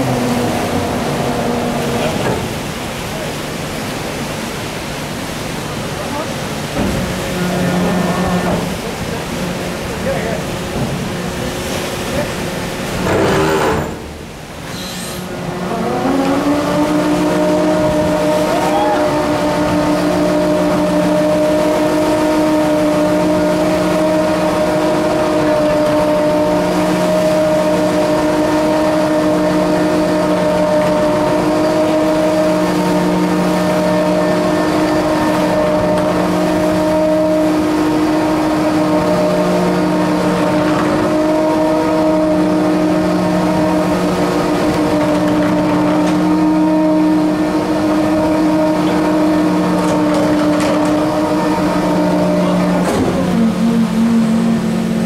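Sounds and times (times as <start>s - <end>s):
winch motor whining: 12.5s - 55.0s.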